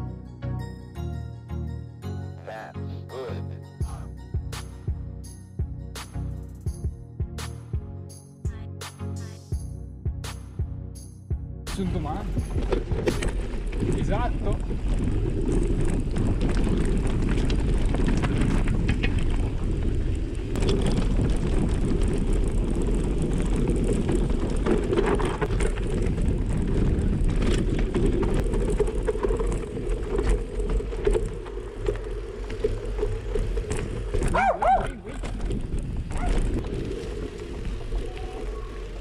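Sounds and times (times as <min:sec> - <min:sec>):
bike knocks and rattles: 0:11.8 - 0:38.4
bike tyres rumbling on gravel: 0:11.8 - 0:39.0.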